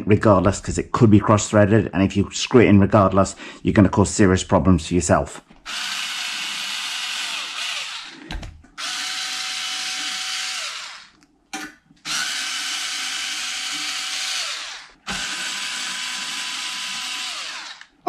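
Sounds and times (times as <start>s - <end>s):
cordless screwdriver driving screws: 5.7s - 8.2s, 8.8s - 11.2s, 12.1s - 17.9s.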